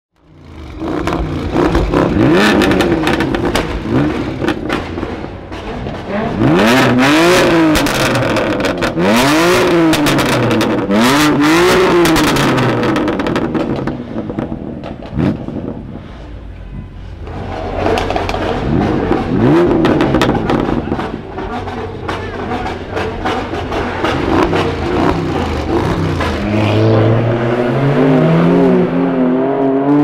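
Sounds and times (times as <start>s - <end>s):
car engine revving: 0.2s - 16.5s, 17.1s - 30.0s
exhaust pops and crackles: 0.6s - 16.0s, 17.2s - 26.5s.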